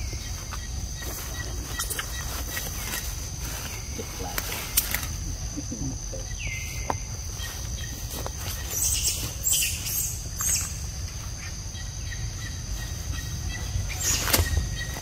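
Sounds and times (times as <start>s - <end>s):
high-pitched insect drone: 0.0s - 15.0s
leaves and twigs rustling: 0.0s - 15.0s.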